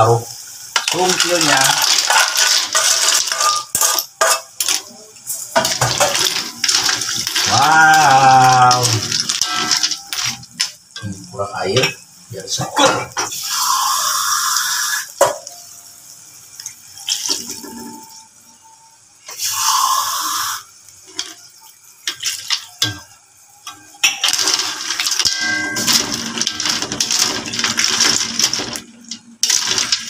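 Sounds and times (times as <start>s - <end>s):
water pouring into wok: 0.0s - 12.5s, 13.3s - 18.3s, 19.3s - 30.0s
metal ladle scraping wok: 0.8s - 11.1s, 24.0s - 30.0s.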